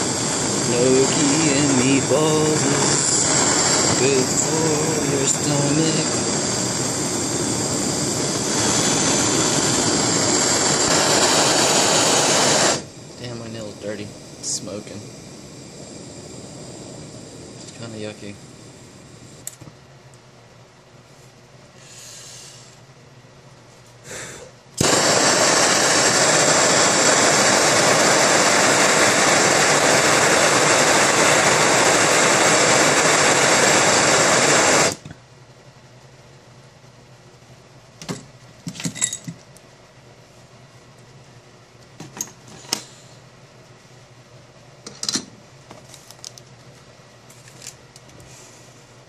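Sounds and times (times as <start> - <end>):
torch flame hissing: 0.0 - 19.6, 21.8 - 22.8, 24.0 - 35.1.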